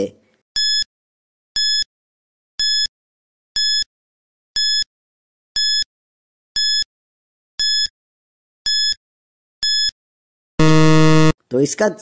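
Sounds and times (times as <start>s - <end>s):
short high electronic beeps: 10.6s - 11.4s.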